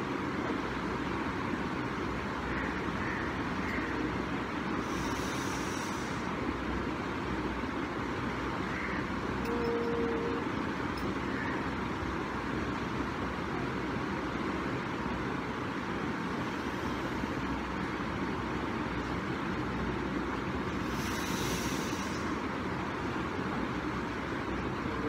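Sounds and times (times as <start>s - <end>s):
steady background noise: 0.0s - 25.0s
short steady tone: 9.4s - 11.2s.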